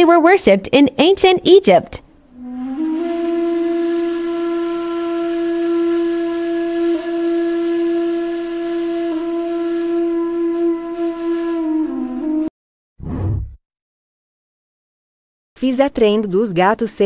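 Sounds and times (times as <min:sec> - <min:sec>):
long wind instrument note: 0:02.3 - 0:12.5.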